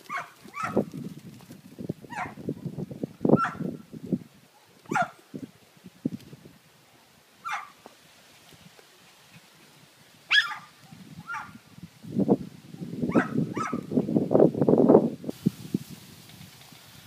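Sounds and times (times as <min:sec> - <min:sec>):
small dog yapping: 0:00.1 - 0:00.9, 0:04.9 - 0:05.2, 0:07.4 - 0:07.8, 0:10.3 - 0:11.6, 0:13.1 - 0:13.8.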